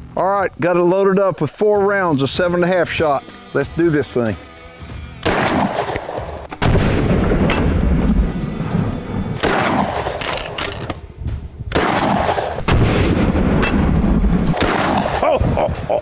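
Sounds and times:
shotgun blasts: 5.2s - 8.1s, 9.4s - 11.0s, 11.7s - 15.6s.

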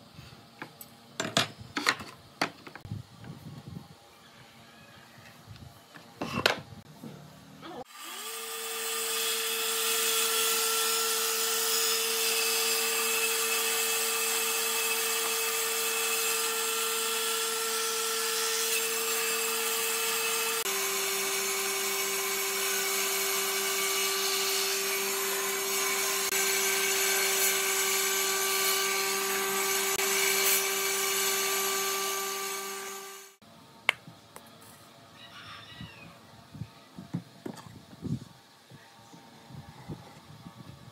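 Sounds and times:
table saw whining: 7.8s - 33.4s.

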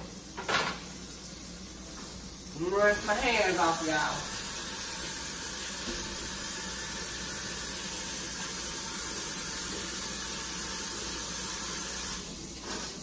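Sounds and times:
faucet running into sink: 0.0s - 13.0s.

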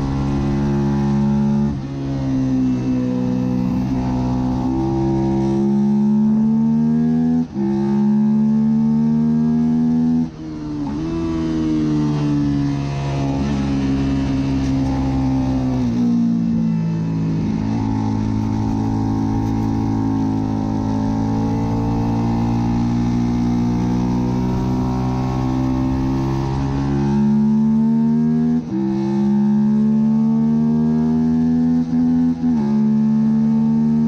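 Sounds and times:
motorcycle engine running hard: 0.0s - 6.9s, 7.5s - 28.2s.

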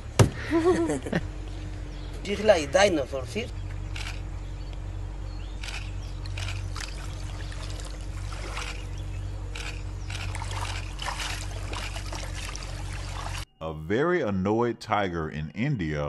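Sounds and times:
steady low rumble: 0.0s - 15.4s
water splashing and sloshing: 5.6s - 13.5s.

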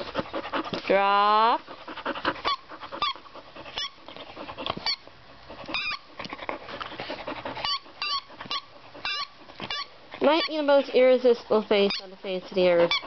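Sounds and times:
squeaky toy squeaks: 2.4s - 4.0s, 5.7s - 6.1s, 7.6s - 10.6s, 11.8s - 12.2s, 12.8s - 13.0s.

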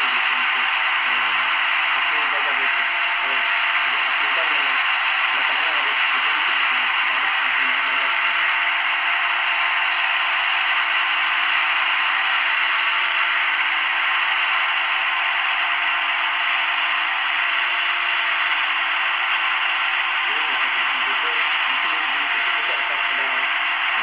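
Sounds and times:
lathe whirring hiss: 0.0s - 24.0s.

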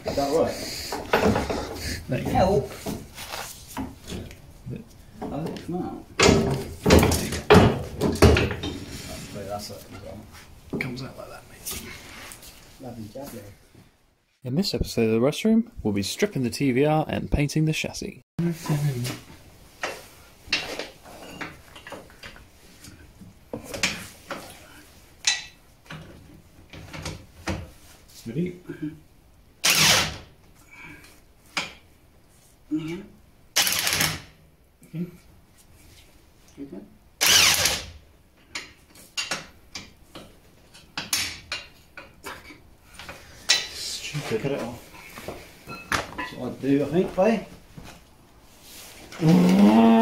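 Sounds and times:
tools clanking on metal: 45.7s - 46.4s.

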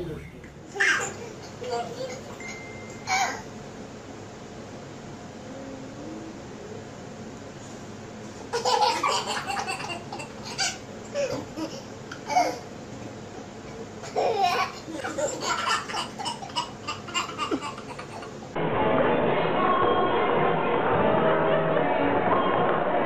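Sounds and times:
toddlers giggling: 0.9s - 2.5s, 8.5s - 12.7s, 14.0s - 18.4s.

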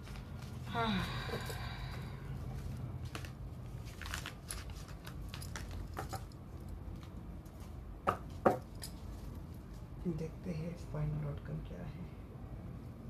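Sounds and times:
cards clicking and rustling: 2.6s - 7.6s.

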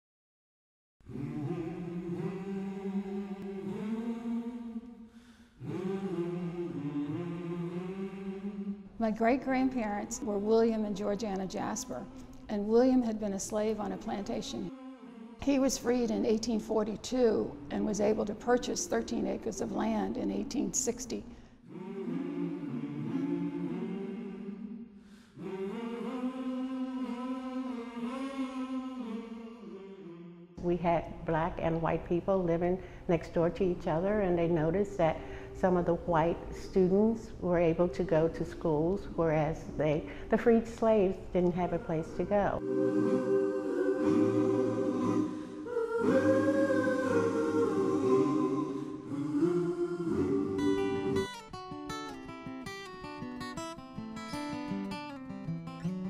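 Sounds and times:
unaccompanied singing: 1.1s - 9.0s, 13.5s - 16.5s, 21.6s - 30.6s, 42.6s - 51.3s
person singing unaccompanied: 42.6s - 51.3s.

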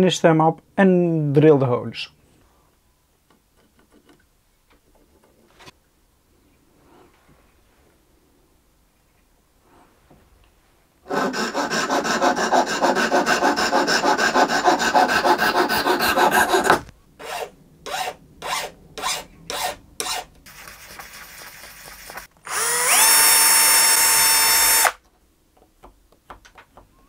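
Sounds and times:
saw cutting wood: 11.1s - 20.3s, 20.9s - 25.0s
file strokes on wood: 11.1s - 22.3s
small power drill whining: 22.4s - 25.0s.

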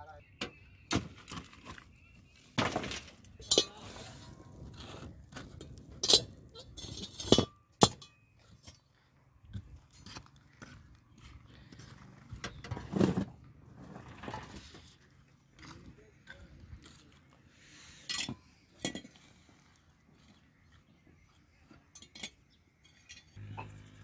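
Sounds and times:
iron lids clanking: 3.4s - 3.9s, 5.6s - 8.1s.

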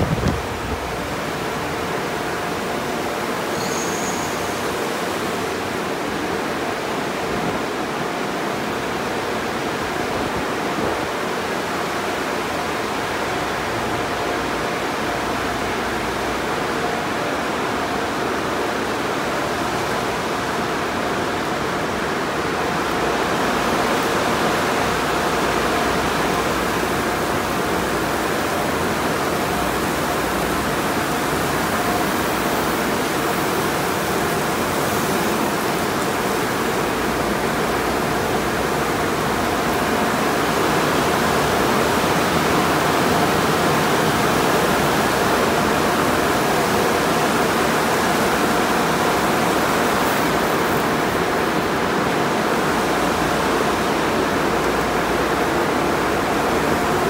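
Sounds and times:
water spray rushing: 25.9s - 57.0s.

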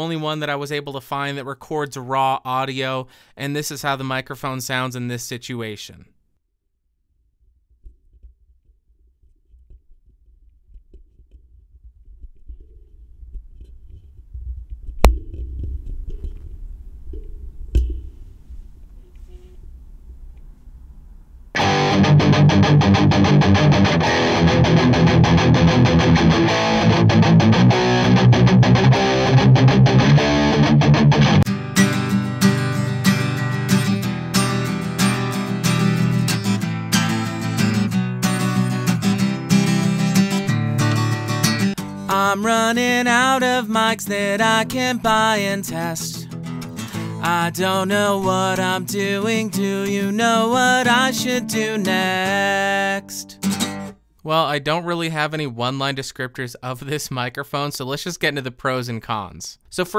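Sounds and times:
microphone hum and rumble: 7.8s - 21.6s
electric guitar through amp: 21.5s - 53.9s
acoustic guitar strumming: 21.6s - 54.0s.

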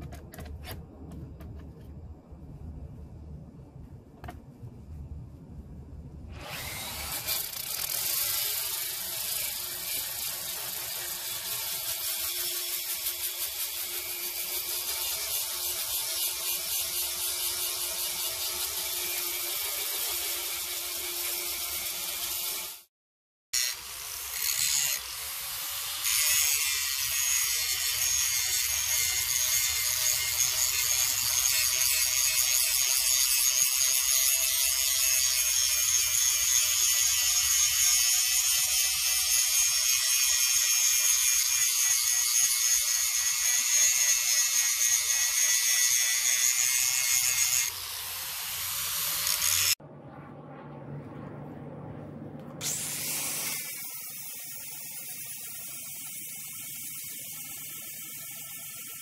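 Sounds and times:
angle grinder grinding metal: 23.6s - 49.8s, 52.6s - 59.0s.

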